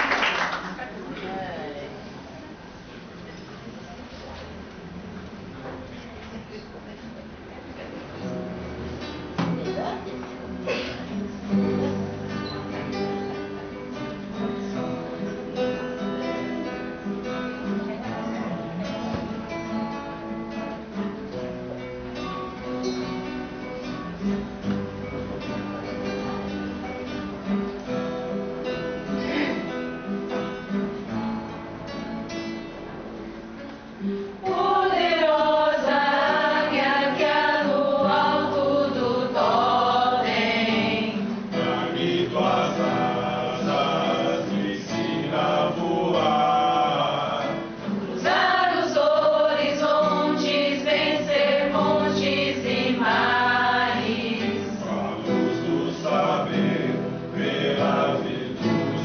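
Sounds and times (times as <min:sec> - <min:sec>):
acoustic guitar: 0:00.0 - 0:59.0
small choir singing: 0:34.4 - 0:59.0.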